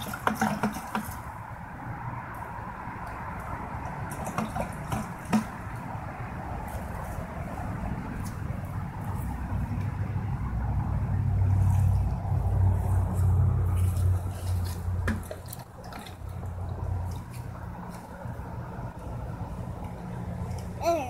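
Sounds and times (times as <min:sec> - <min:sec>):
low motor rumble: 0:05.6 - 0:21.0.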